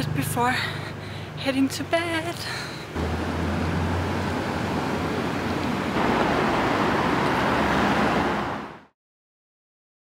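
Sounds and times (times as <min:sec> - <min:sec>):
distant traffic rush: 0:00.0 - 0:08.9.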